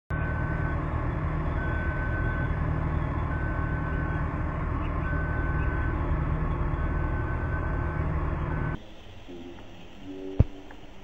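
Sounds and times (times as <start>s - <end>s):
long warning beeps: 0.1s - 8.8s
diesel engine running: 0.1s - 11.0s.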